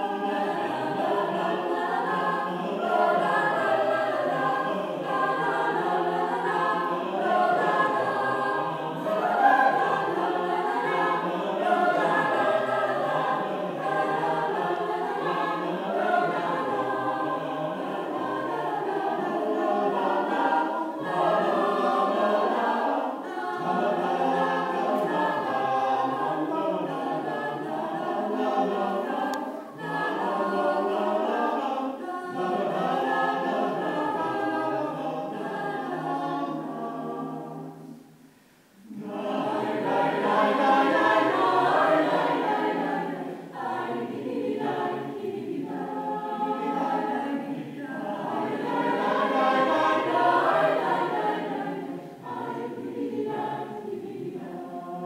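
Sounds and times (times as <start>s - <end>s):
choir singing unaccompanied: 0.0s - 55.0s.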